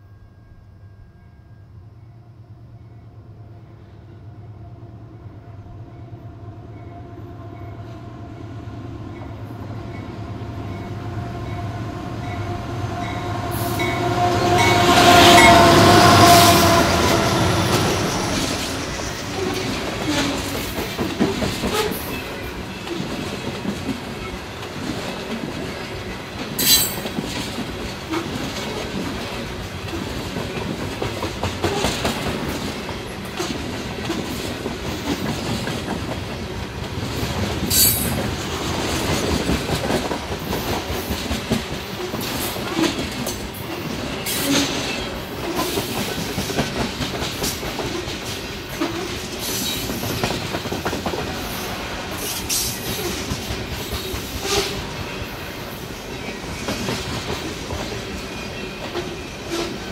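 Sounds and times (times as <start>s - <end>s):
diesel locomotive engines: 0.0s - 59.9s
sharp metal clank: 26.6s - 27.0s.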